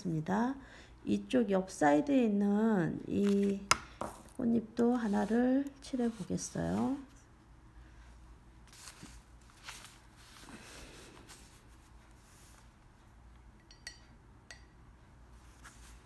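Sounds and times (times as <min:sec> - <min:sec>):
low room hum: 0:00.0 - 0:16.0
paper rustling on a table: 0:03.2 - 0:04.2, 0:08.6 - 0:12.6.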